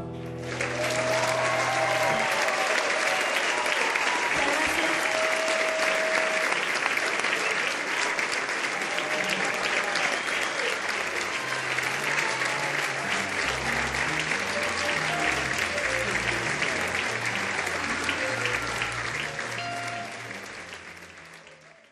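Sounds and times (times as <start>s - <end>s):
audience applauding: 0.0s - 21.9s.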